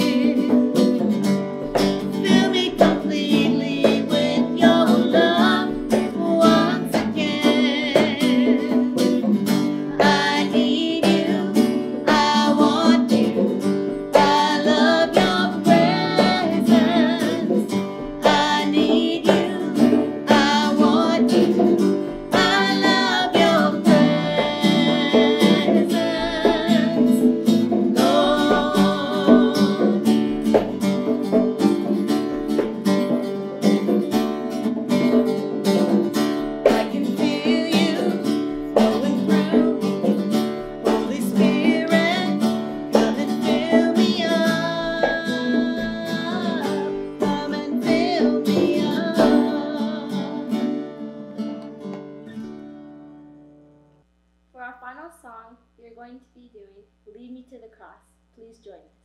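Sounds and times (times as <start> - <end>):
person singing: 0.0 - 1.2, 2.0 - 32.7, 36.6 - 51.4
worship song with congas and guitars: 0.0 - 52.6.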